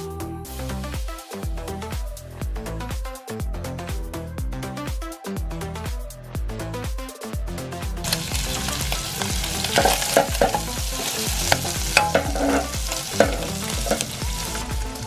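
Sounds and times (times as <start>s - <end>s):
liver sizzling in oil: 8.0s - 15.0s
wooden spatula scraping pan: 9.5s - 14.2s.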